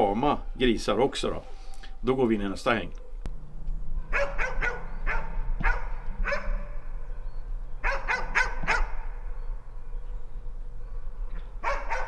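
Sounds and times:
dog barking sharply: 0:04.1 - 0:06.8, 0:07.8 - 0:09.0, 0:11.6 - 0:12.0.

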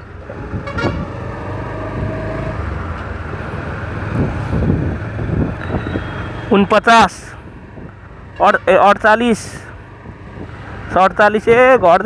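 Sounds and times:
wind rushing over microphone: 0:00.1 - 0:06.6, 0:07.3 - 0:08.3, 0:09.8 - 0:12.0.

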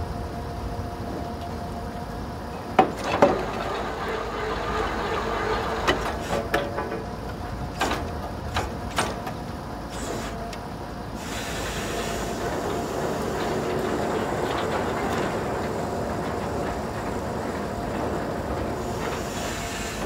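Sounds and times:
drilling rig engine running: 0:00.0 - 0:20.0
steady hiss: 0:09.8 - 0:20.0.

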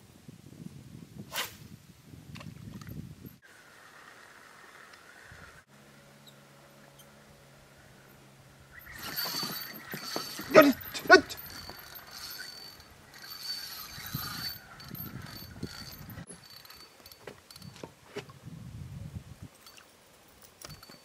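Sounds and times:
fishing reel whirring: 0:08.7 - 0:17.7.

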